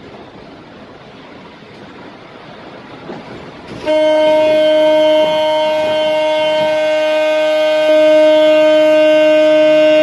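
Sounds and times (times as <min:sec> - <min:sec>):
car horn long blast: 0:03.8 - 0:10.0.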